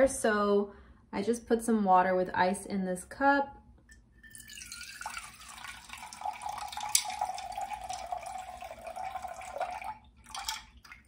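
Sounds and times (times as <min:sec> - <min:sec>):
water pouring into a blender jar: 0:04.2 - 0:11.0.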